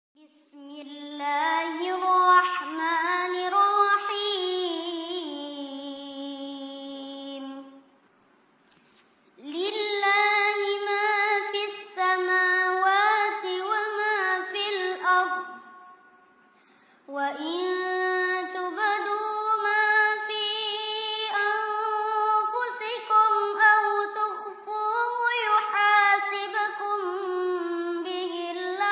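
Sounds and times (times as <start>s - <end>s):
person chanting recitation: 0.3s - 7.8s, 9.4s - 15.7s, 17.1s - 28.9s.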